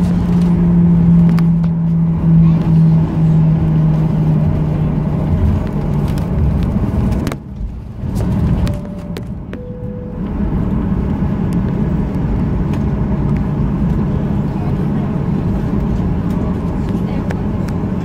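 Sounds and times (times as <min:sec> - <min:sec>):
airframe and wheels rumbling: 0:00.0 - 0:18.0
jet engines humming: 0:00.0 - 0:18.0
faint cabin chime tones: 0:08.7 - 0:10.6.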